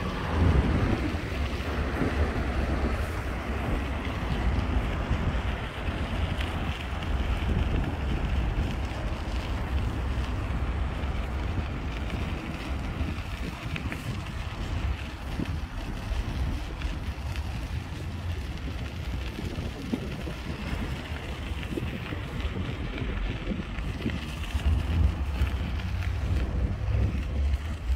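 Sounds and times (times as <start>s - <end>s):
wind buffeting microphone: 0.0s - 27.9s.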